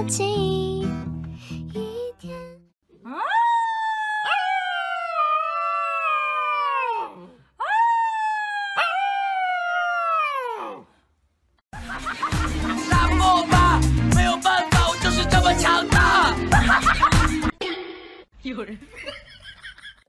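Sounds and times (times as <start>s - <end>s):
puppy howling: 3.0s - 10.8s.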